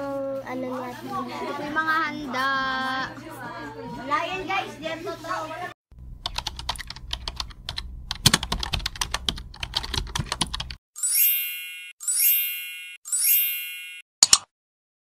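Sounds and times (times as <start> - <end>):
bright chime dings: 11.0 - 14.0.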